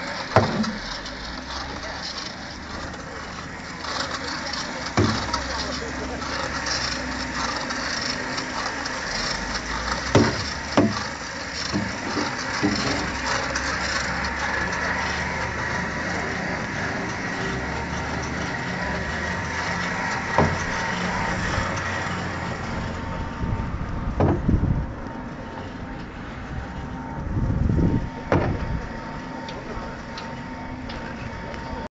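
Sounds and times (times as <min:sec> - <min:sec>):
hose pump humming: 0:00.0 - 0:31.9
sharp knocks: 0:00.4 - 0:00.8, 0:10.1 - 0:11.1, 0:24.2 - 0:24.6, 0:28.3 - 0:28.8
low rumble: 0:15.3 - 0:29.3.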